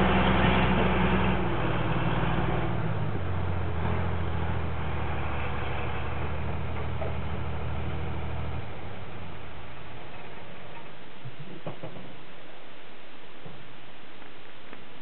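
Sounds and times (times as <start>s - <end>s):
diesel engine running: 0.0s - 11.9s.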